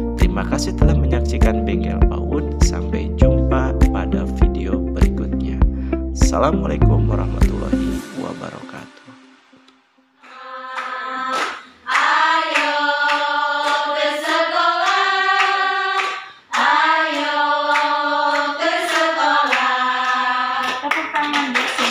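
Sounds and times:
hand claps: 10.2 - 13.9, 14.8 - 21.9
women singing in unison: 10.2 - 21.9.

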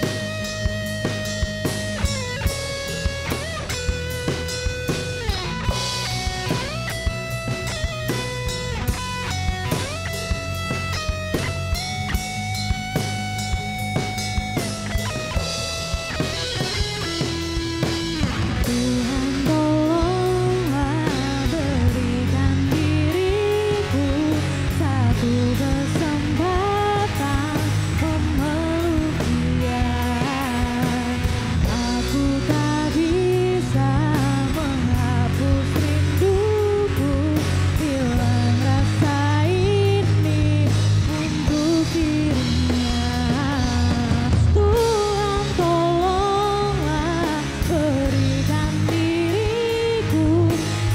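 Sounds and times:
bass guitar: 0.0 - 50.9
drum kit: 0.0 - 50.9
electric guitar: 0.0 - 50.9
woman singing: 18.6 - 50.9.

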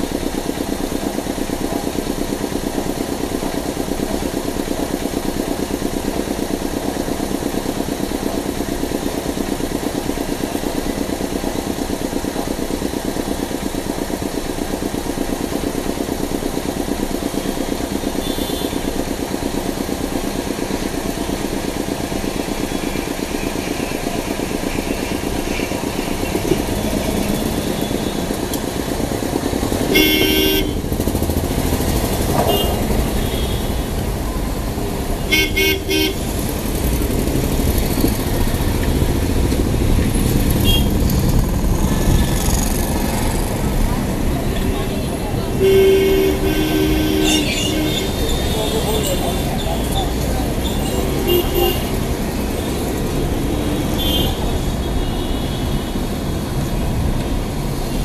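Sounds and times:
car engine idling: 0.0 - 58.0
car horn honk: 18.2 - 18.9, 29.8 - 30.9, 32.4 - 33.9, 35.2 - 36.3, 40.6 - 41.0, 45.6 - 49.4, 50.8 - 52.0, 54.0 - 54.4.

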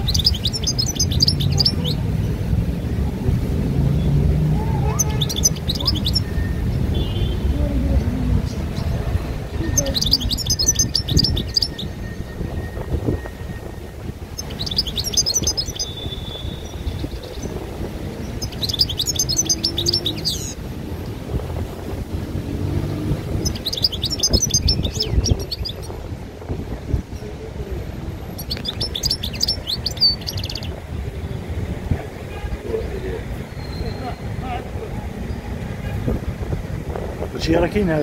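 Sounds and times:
songbird twittering: 0.0 - 2.0, 4.8 - 7.4, 8.4 - 20.6, 22.7 - 26.0, 28.3 - 30.8.

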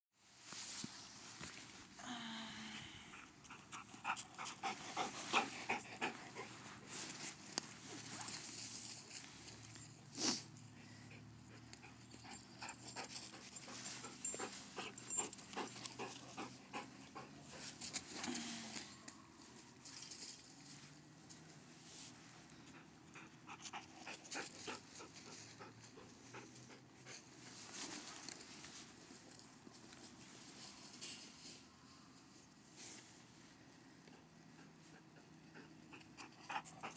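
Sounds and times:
dogs panting: 3.1 - 8.4, 10.7 - 18.1, 22.6 - 27.4, 34.0 - 36.9
rustling through dry leaves: 6.5 - 10.3.

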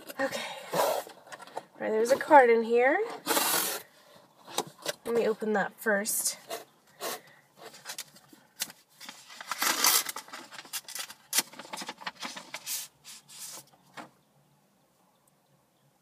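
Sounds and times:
paper rustling: 6.5 - 14.0
envelope tearing: 9.0 - 13.5.

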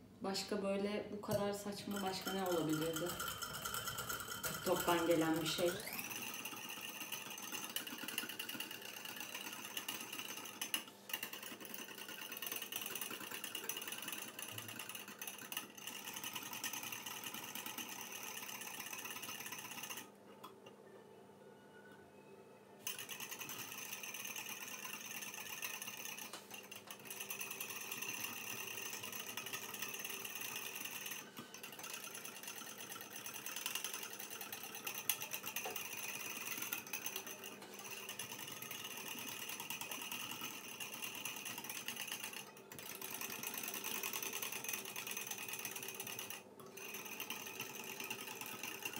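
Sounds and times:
spoon whisking in ceramic bowl: 1.3 - 17.3.

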